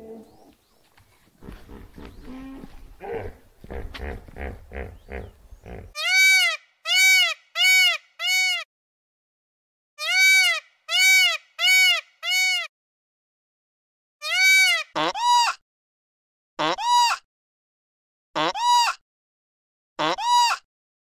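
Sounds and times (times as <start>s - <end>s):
short low pulses: 1.4s - 5.9s
peacock calling: 1.4s - 8.6s.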